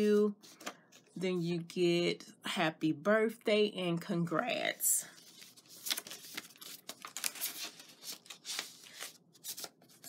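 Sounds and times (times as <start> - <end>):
packaging rustling and crinkling: 5.2 - 10.0.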